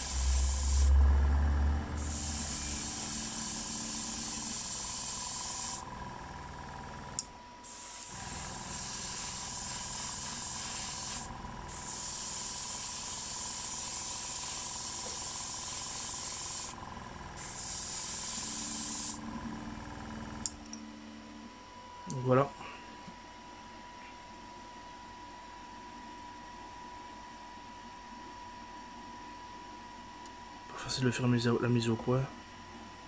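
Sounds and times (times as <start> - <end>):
airbrush spraying: 0.0 - 1.0, 2.0 - 5.9, 7.6 - 16.8, 17.4 - 19.2.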